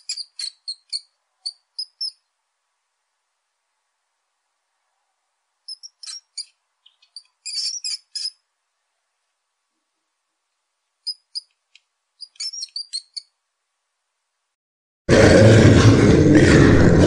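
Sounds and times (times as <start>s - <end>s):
bird chirping: 0.0s - 2.3s, 5.6s - 8.4s, 11.0s - 13.4s.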